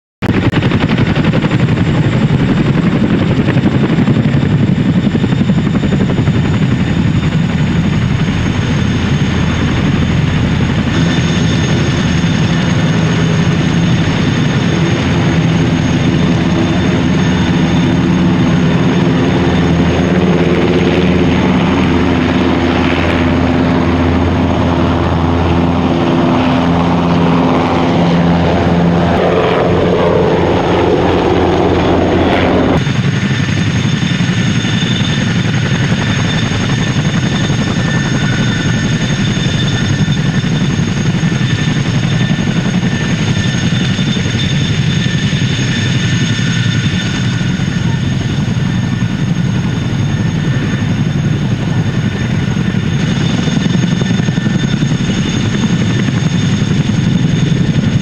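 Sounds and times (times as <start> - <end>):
helicopter rotor chop: 0.2 - 58.0
turbine and transmission whine: 0.2 - 58.0
low hum: 7.2 - 33.2.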